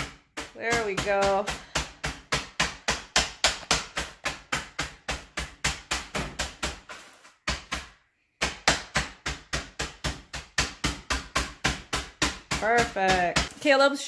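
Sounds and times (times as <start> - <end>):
pounding cookies in plastic bag: 0.0 - 13.7.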